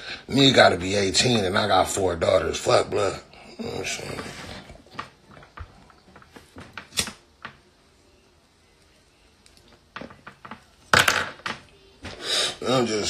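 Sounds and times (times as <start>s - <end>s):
lighter clicks: 6.8s - 7.2s
lighter strike: 6.9s - 7.2s.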